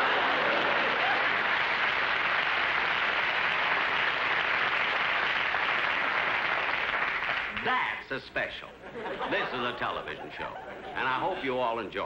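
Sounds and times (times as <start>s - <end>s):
audience laughing: 0.0s - 1.4s, 8.8s - 11.7s
audience applauding: 0.0s - 7.8s.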